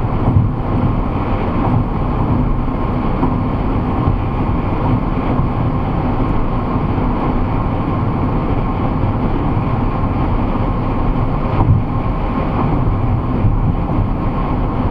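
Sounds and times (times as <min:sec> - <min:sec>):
low engine drone: 0:00.0 - 0:14.9
car bump: 0:00.1 - 0:06.9, 0:11.5 - 0:14.2.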